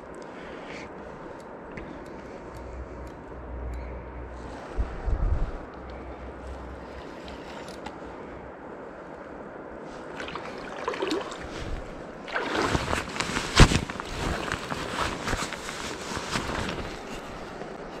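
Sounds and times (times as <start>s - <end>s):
rough handling noise: 4.4s - 8.3s, 11.4s - 18.0s
flowing river water: 10.0s - 14.8s.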